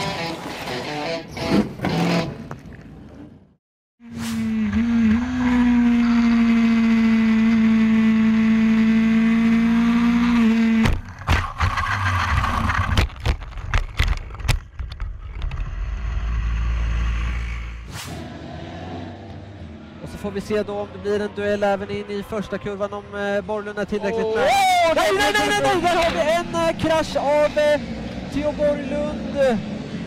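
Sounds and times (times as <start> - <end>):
racing motorcycle engine high revs: 4.1 - 11.0
motorcycle crashing knocks and scrapes: 10.8 - 15.7.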